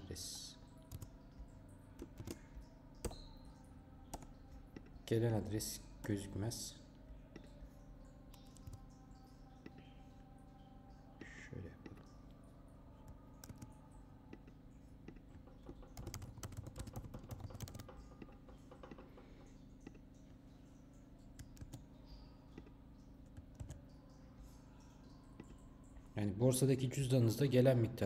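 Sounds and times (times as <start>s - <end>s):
low steady hum: 0.0s - 28.0s
keyboard typing: 0.8s - 3.2s, 4.1s - 5.0s, 8.3s - 8.9s, 13.3s - 20.0s, 21.4s - 21.8s, 23.3s - 23.9s.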